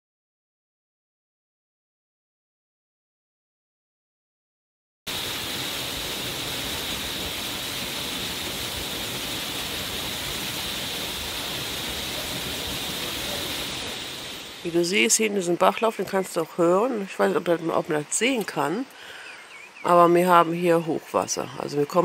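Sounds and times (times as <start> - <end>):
waterfall rushing: 5.1 - 19.5.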